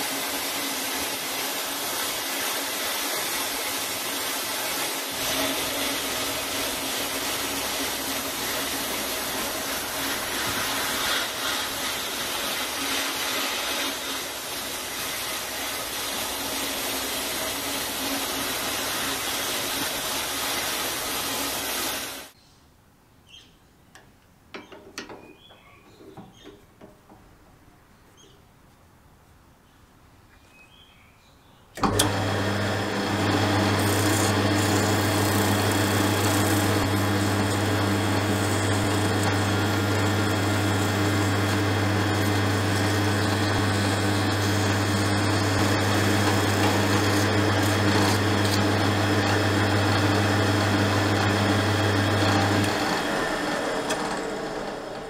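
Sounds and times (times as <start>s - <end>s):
sandpaper rubbing on metal: 9.7s - 14.2s
drill press motor humming: 31.8s - 55.0s.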